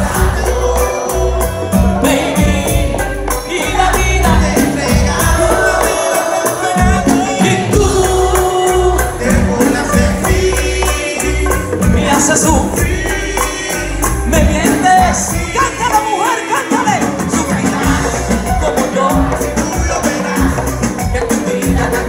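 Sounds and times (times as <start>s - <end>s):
live latin music: 0.0s - 22.0s
percussion: 0.0s - 22.0s
person singing: 0.0s - 22.0s
pulsing bass beat: 16.7s - 22.0s.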